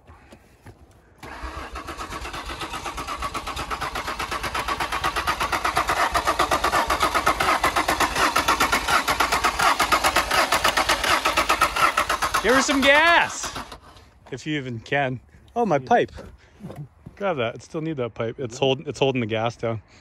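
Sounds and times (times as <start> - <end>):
starter motor cranking engine: 1.2 - 14.2.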